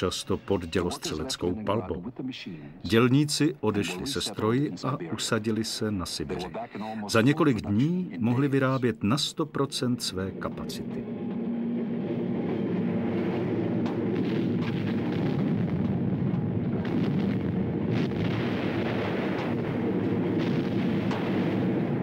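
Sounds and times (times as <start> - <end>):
heavy machinery rumble: 10.4 - 22.0.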